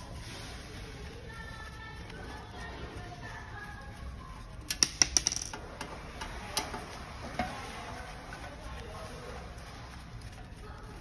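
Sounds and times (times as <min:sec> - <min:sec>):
screwdriver clicking on sheet metal: 0:04.7 - 0:05.6.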